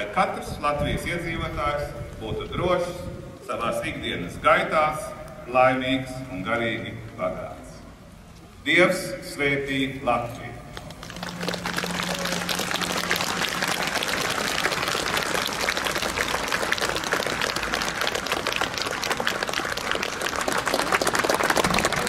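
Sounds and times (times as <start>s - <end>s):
crowd applauding: 10.8s - 22.0s.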